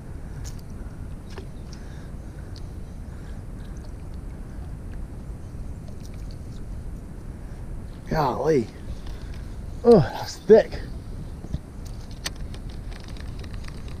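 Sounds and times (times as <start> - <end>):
wind rumbling on microphone: 0.0 - 14.0.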